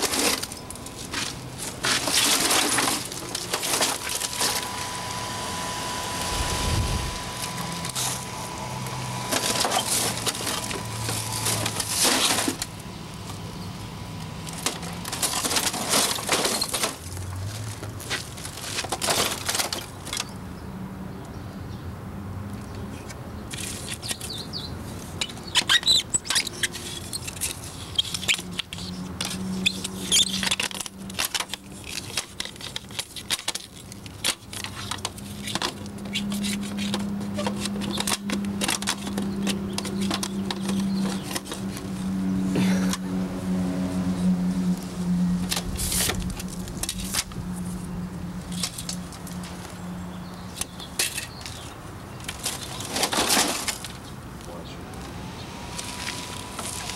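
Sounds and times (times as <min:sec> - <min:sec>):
parts crackling and clicking: 0:25.2 - 0:42.1.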